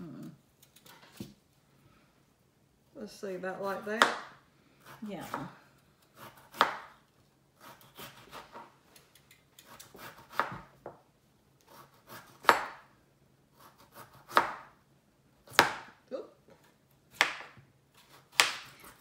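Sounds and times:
knife scraping through potato: 0:04.8 - 0:06.8, 0:07.6 - 0:10.7, 0:11.6 - 0:12.6, 0:13.5 - 0:14.5.

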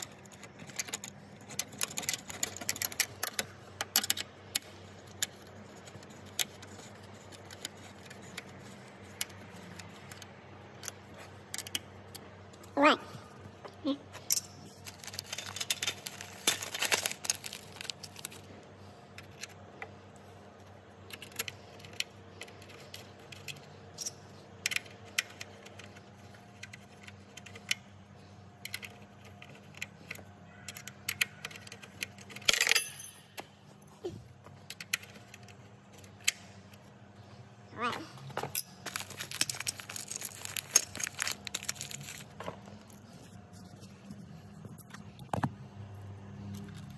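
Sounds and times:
small metal clicks and clinks: 0:21.1 - 0:25.9, 0:28.6 - 0:33.6.

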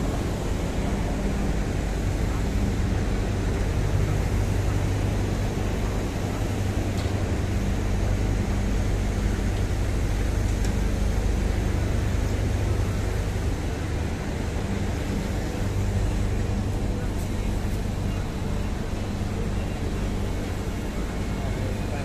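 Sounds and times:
heavy machinery humming: 0:00.0 - 0:22.0.

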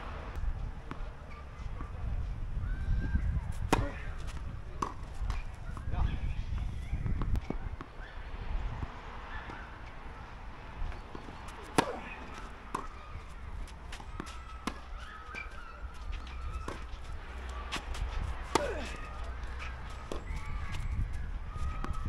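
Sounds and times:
racket hitting tennis ball: 0:03.5 - 0:05.8, 0:09.2 - 0:20.4
tennis ball bouncing on court: 0:03.6 - 0:05.9, 0:09.2 - 0:20.8.

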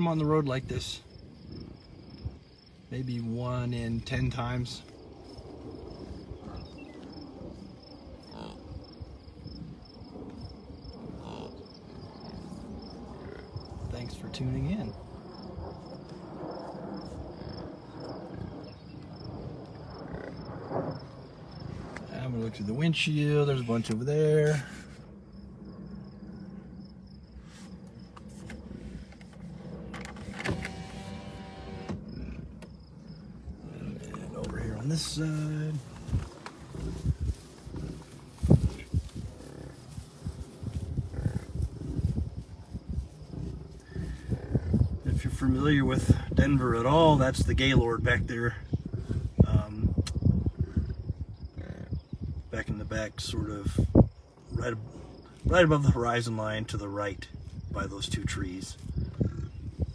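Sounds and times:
cricket chirping: 0:00.0 - 0:59.9
wind rumble on microphone: 0:00.0 - 0:59.9
electric window motor whirring: 0:30.0 - 0:32.0.

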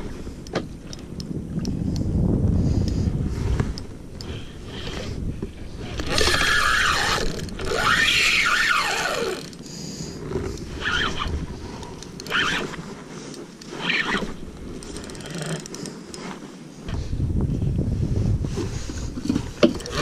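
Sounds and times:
fishing reel drag buzzing: 0:05.9 - 0:12.9.

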